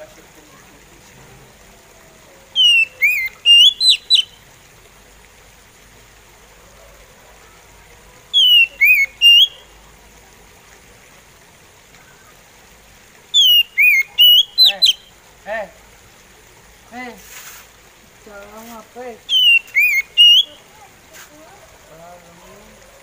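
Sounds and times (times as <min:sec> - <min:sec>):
bird whistling song: 0:02.5 - 0:04.4, 0:08.3 - 0:09.7, 0:13.3 - 0:15.1, 0:19.3 - 0:20.6.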